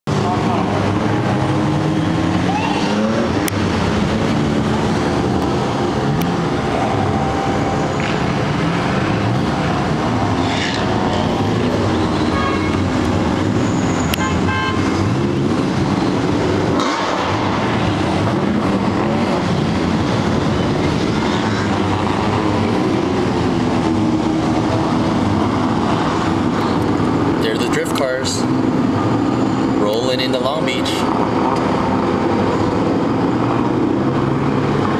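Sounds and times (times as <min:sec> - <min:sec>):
car engines revving: 0:00.0 - 0:34.9
horn toots: 0:12.0 - 0:13.0, 0:13.7 - 0:15.1.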